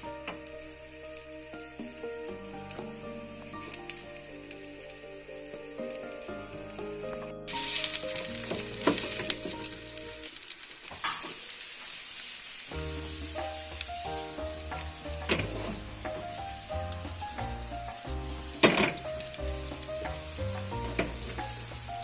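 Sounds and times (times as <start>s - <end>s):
background music: 0.0s - 10.6s, 12.7s - 22.0s
batter sizzling in hot oil: 0.0s - 22.0s.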